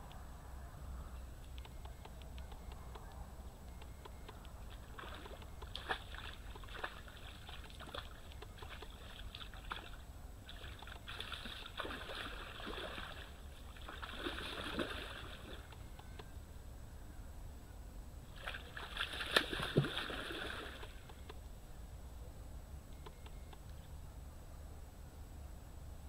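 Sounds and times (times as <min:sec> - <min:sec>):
short clicks: 0:01.4 - 0:04.6
fish splashing at the surface: 0:04.8 - 0:15.7, 0:18.4 - 0:21.0.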